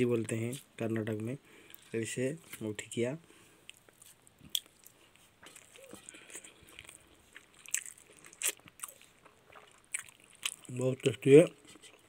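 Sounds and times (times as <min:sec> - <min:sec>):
person chewing food: 0:03.5 - 0:12.0
crunchy bites: 0:03.7 - 0:10.8.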